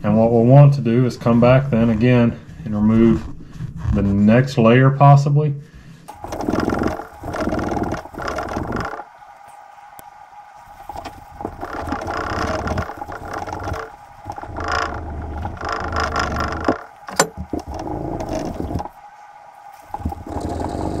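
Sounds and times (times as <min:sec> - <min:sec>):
steel wool scrubbing metal: 0:06.1 - 0:21.0.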